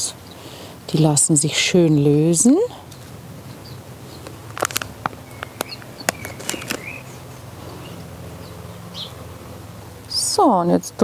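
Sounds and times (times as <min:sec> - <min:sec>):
seedlings pulled from plastic tray: 0:04.5 - 0:07.0.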